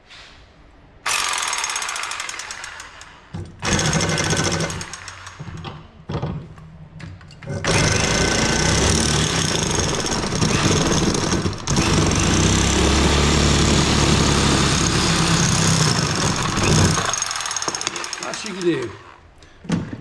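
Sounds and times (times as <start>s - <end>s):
reciprocating saw cutting metal: 7.6s - 19.0s.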